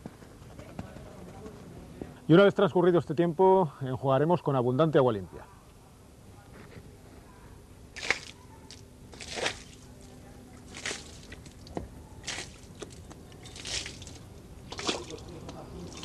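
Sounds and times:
water splashing against boat hull: 0:09.1 - 0:09.9, 0:10.6 - 0:16.0.

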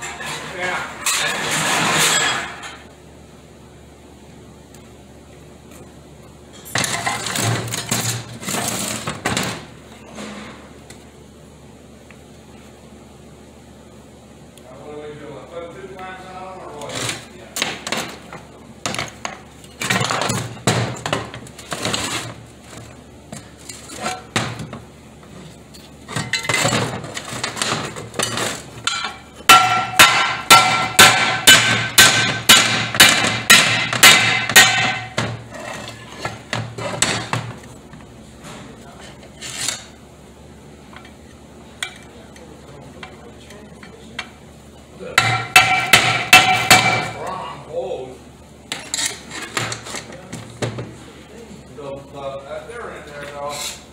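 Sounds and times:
hammer striking metal: 0:28.3 - 0:35.4, 0:45.2 - 0:47.2.

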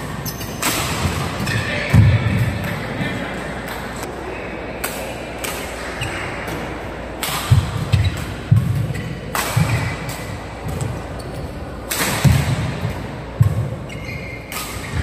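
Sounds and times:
shoe squeaks: 0:00.2 - 0:00.7, 0:13.9 - 0:15.0
racket striking shuttlecock: 0:04.8 - 0:11.0, 0:11.9 - 0:13.8.

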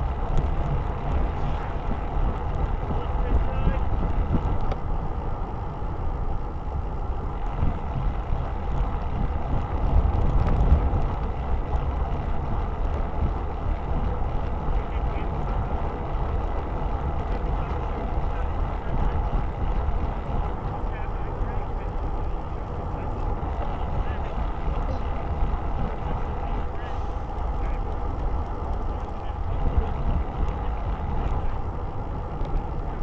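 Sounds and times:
tyre and road noise: 0:00.0 - 0:33.0
wind buffeting microphone: 0:00.0 - 0:33.0.

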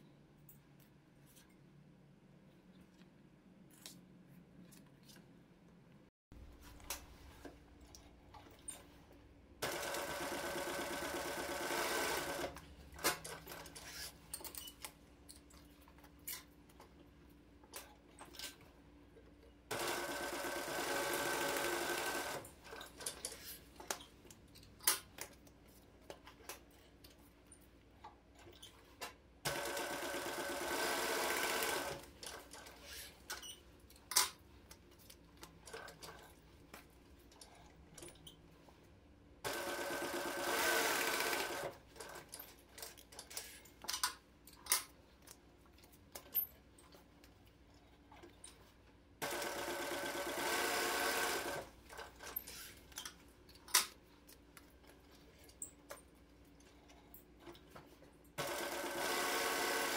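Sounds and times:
sewing machine stitching leather: 0:09.6 - 0:14.2, 0:19.7 - 0:23.1, 0:29.5 - 0:33.1, 0:39.5 - 0:42.4, 0:49.2 - 0:52.6, 0:58.4 - 0:59.9.

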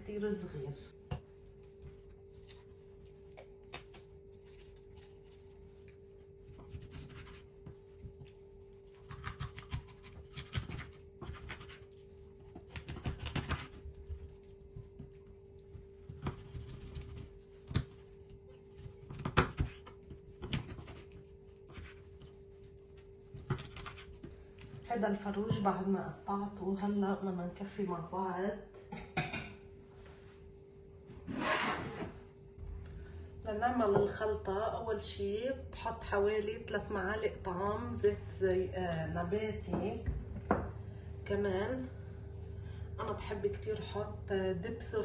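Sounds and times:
steady hum: 0:00.0 - 0:45.0
knife cutting raw chicken: 0:08.9 - 0:11.9, 0:18.8 - 0:22.0.

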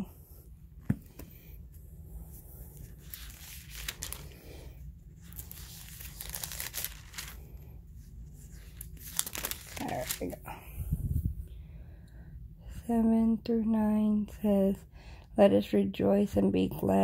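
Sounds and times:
thin pages turning: 0:02.7 - 0:10.4.

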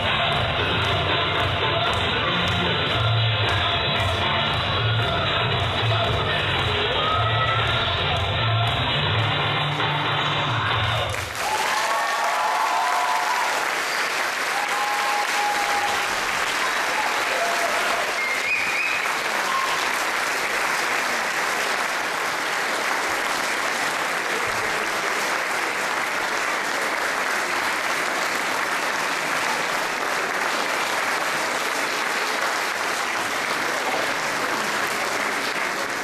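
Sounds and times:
audience applauding: 0:11.0 - 0:36.0.

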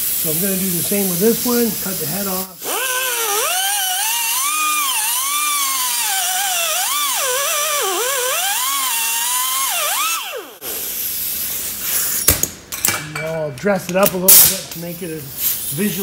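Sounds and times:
grinder cutting metal: 0:01.5 - 0:10.7.

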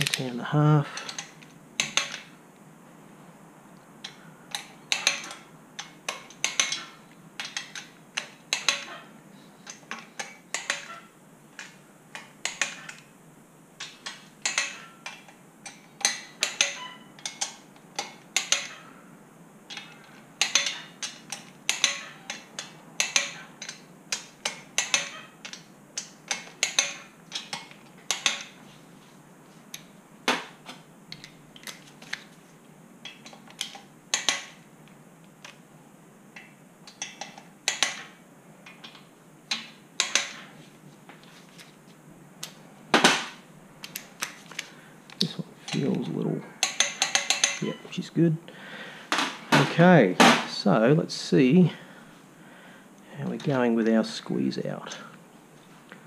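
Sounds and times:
socket clinking on studs: 0:04.0 - 0:09.0, 0:09.7 - 0:11.0, 0:13.8 - 0:18.8, 0:19.7 - 0:28.6, 0:33.0 - 0:34.6, 0:36.4 - 0:40.4, 0:46.6 - 0:47.9.

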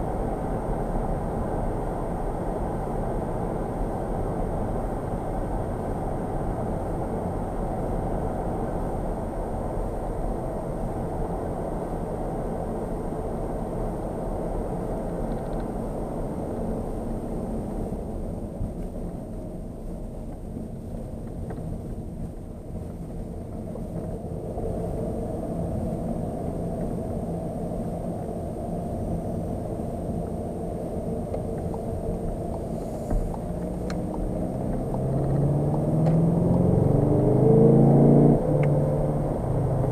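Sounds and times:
diesel car engine: 0:00.0 - 0:39.9
tyre and road noise: 0:15.2 - 0:39.9.

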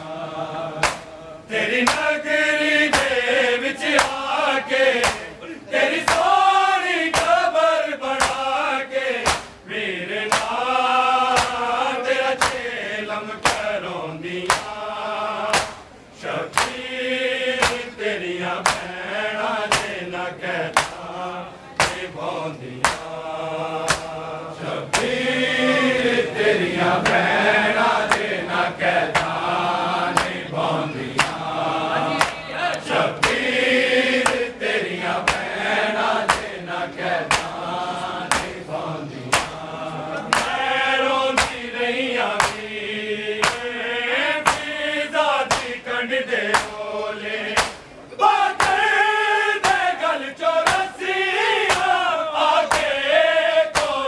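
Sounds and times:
men chanting a lament: 0:00.0 - 0:54.0
hands slapping chests: 0:00.8 - 0:01.2, 0:01.8 - 0:02.2, 0:02.9 - 0:03.2, 0:04.0 - 0:04.2, 0:05.0 - 0:05.4, 0:06.0 - 0:06.4, 0:07.1 - 0:07.4, 0:08.1 - 0:08.5, 0:09.2 - 0:09.6, 0:10.3 - 0:10.6, 0:11.3 - 0:11.7, 0:12.4 - 0:12.7, 0:13.4 - 0:13.8, 0:14.4 - 0:14.8, 0:15.5 - 0:15.9, 0:16.5 - 0:16.8, 0:17.6 - 0:17.9, 0:18.6 - 0:18.9, 0:19.7 - 0:20.0, 0:20.7 - 0:21.1, 0:21.8 - 0:22.1, 0:22.8 - 0:23.2, 0:23.8 - 0:24.2, 0:24.9 - 0:25.2, 0:27.0 - 0:27.3, 0:28.0 - 0:28.4, 0:29.0 - 0:29.4, 0:30.1 - 0:30.5, 0:31.1 - 0:31.5, 0:32.1 - 0:33.5, 0:34.2 - 0:34.6, 0:35.2 - 0:35.6, 0:36.2 - 0:36.6, 0:37.2 - 0:37.6, 0:38.3 - 0:38.7, 0:39.3 - 0:40.6, 0:41.4 - 0:41.6, 0:42.3 - 0:42.7, 0:43.4 - 0:43.8, 0:44.4 - 0:44.7, 0:45.5 - 0:45.8, 0:46.5 - 0:46.8, 0:47.6 - 0:47.9, 0:48.6 - 0:48.8, 0:49.6 - 0:49.9, 0:50.6 - 0:50.9, 0:51.6 - 0:52.0, 0:52.7 - 0:53.0, 0:53.7 - 0:54.0.

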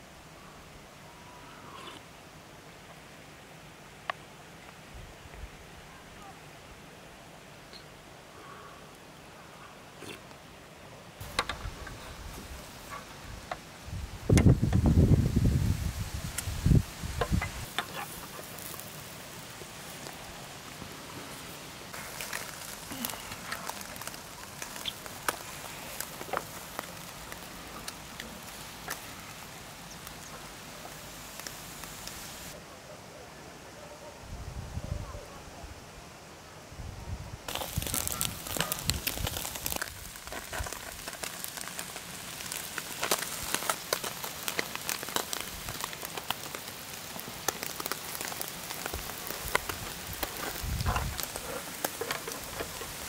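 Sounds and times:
crackles and pops: 0:11.2 - 0:32.6, 0:37.5 - 0:53.0
fish sizzling over charcoal: 0:11.2 - 0:32.6, 0:37.5 - 0:53.0.

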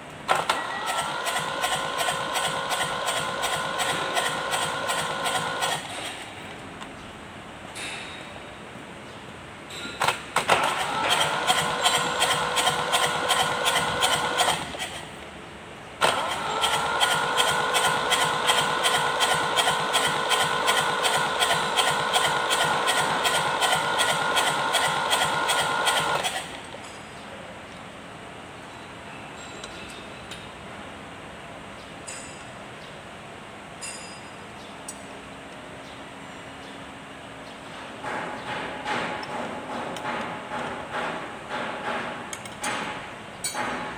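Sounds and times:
diesel engine cranking on starter: 0:00.2 - 0:06.4, 0:10.0 - 0:15.2, 0:16.0 - 0:26.8.

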